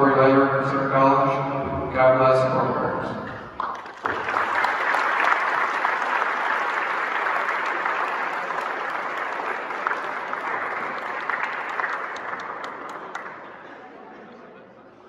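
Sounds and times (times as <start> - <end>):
audience applauding: 3.5 - 14.1.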